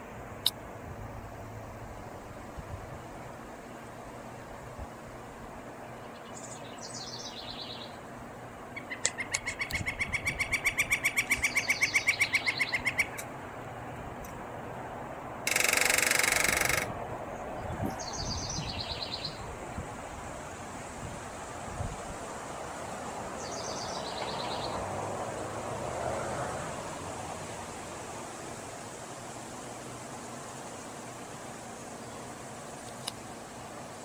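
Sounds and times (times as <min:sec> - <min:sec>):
small birds chirping: 0:05.8 - 0:13.3, 0:17.4 - 0:19.5, 0:23.4 - 0:24.8
woodpecker drumming on metal: 0:15.5 - 0:16.9.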